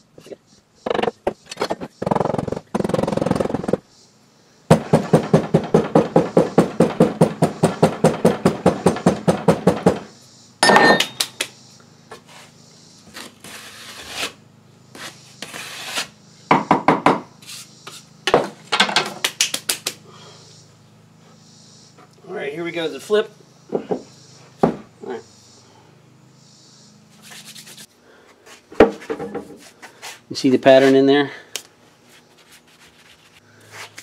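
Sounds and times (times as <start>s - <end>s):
scattered knocks: 0.8s - 3.8s, 4.7s - 10.1s
sharp metallic clink with ring: 10.6s - 11.3s.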